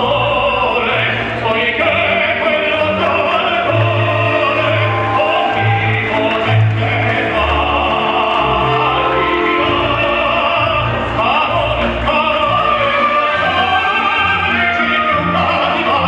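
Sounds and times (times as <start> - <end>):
classical music with operatic singing: 0.0 - 16.0.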